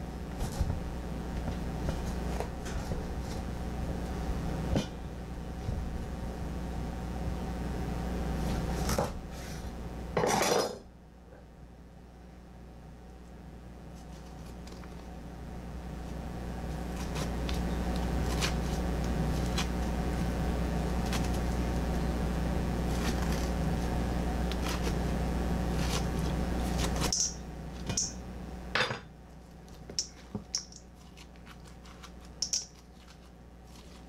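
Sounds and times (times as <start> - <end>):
low mechanical hum: 0.0 - 34.0.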